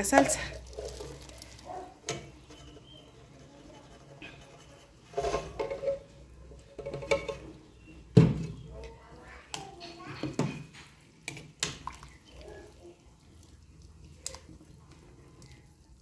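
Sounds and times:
salsa pouring: 0.1 - 3.4, 11.0 - 16.0.

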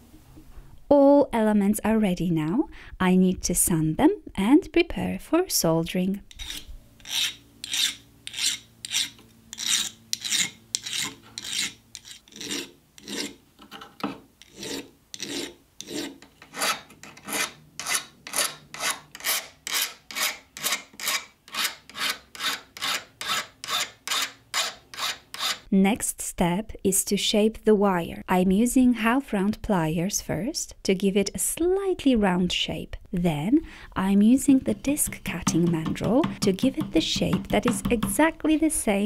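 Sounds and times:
hand file rasping on brass: 6.3 - 13.4, 14.4 - 25.7.

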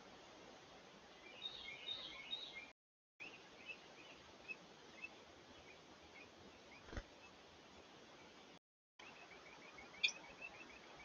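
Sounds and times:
wren chirping: 9.0 - 11.0.

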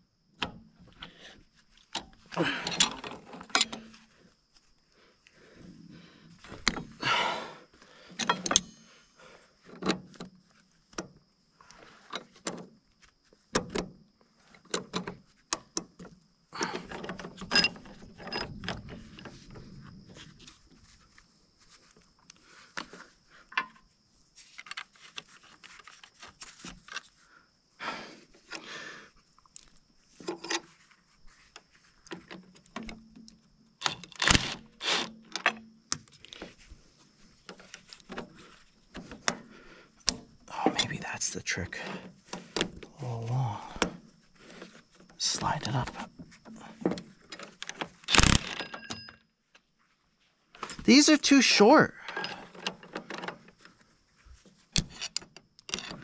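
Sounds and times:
tools clinking on steel cable: 1.9 - 3.9, 8.2 - 9.1, 16.6 - 19.3, 45.4 - 49.3, 52.0 - 53.6.

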